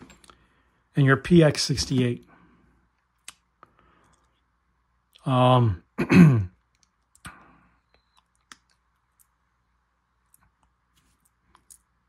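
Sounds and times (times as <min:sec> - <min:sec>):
person speaking: 0:00.9 - 0:02.4, 0:05.2 - 0:05.9.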